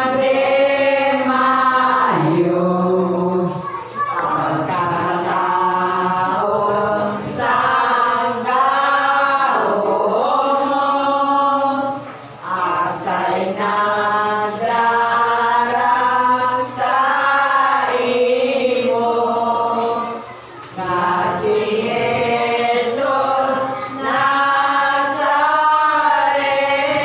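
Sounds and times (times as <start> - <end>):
women singing a hymn: 0.0 - 27.0.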